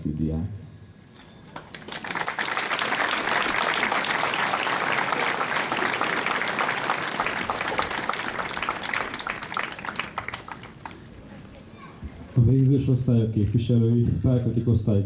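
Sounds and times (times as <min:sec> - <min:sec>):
audience applauding: 0:01.2 - 0:11.3.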